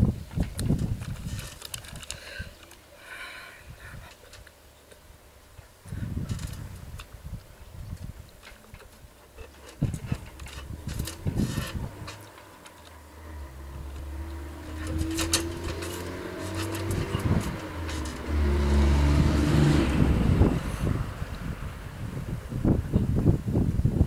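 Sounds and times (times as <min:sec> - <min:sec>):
engine running: 0:09.4 - 0:22.4.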